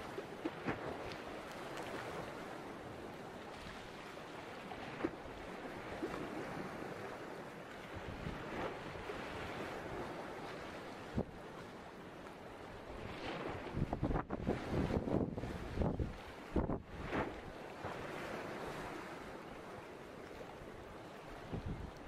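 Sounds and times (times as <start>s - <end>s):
sea washing: 0.0s - 22.0s
wind buffeting microphone: 7.9s - 11.4s, 12.9s - 19.2s, 21.4s - 22.0s.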